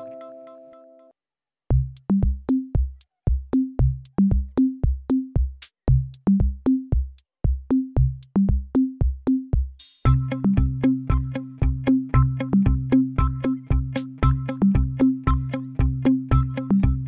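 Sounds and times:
drum machine bass drum beat: 0:01.7 - 0:17.0
low bass notes: 0:10.1 - 0:17.0.

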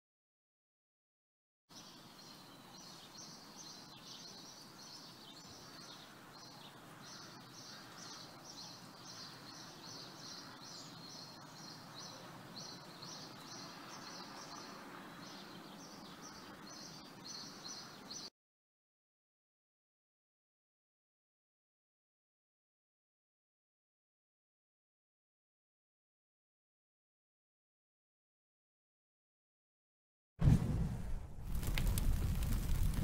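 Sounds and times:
small birds chirping: 0:01.7 - 0:18.3.

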